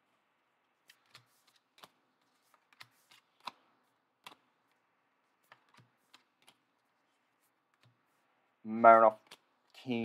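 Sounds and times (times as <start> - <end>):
trading cards clicking: 0.9 - 4.5, 5.4 - 6.7, 9.1 - 9.9.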